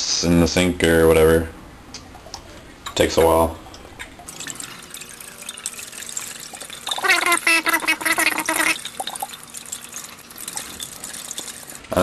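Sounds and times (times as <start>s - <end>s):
liquid trickling into a sink: 2.2s - 12.0s.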